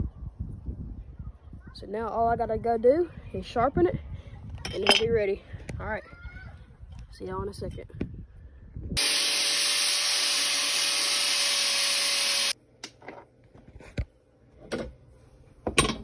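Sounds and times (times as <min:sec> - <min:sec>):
power tool high hiss: 0:09.0 - 0:12.6.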